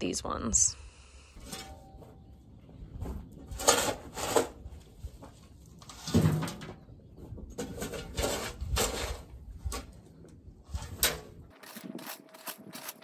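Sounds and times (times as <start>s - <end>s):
metal shovel scraping floor: 1.4s - 2.0s, 3.5s - 4.7s, 7.6s - 9.9s.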